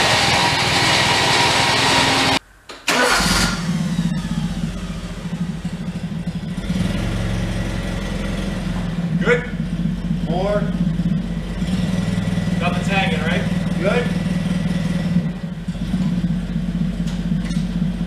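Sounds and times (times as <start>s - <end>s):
tractor engine running: 0.0s - 18.0s.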